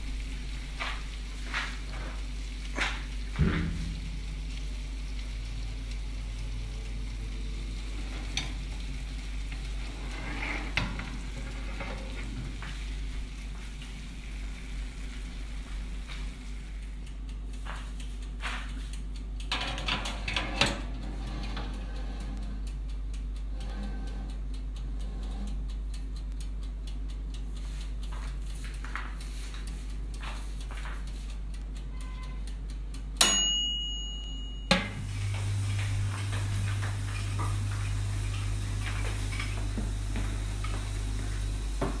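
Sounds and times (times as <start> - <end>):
chicken sizzling in fat: 0.0 - 17.0, 35.0 - 42.0
low hum: 0.0 - 17.6, 34.0 - 42.0
sharp knock: 3.4 - 4.0.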